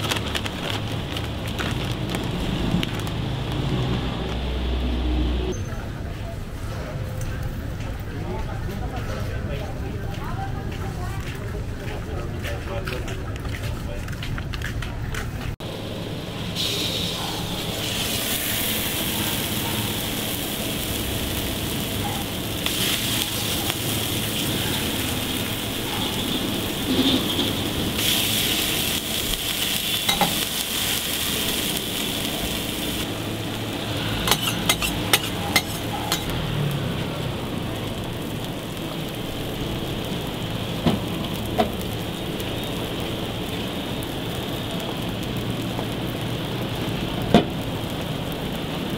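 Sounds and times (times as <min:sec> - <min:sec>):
patties sizzling on griddle: 0:00.0 - 0:05.4, 0:15.6 - 0:48.9.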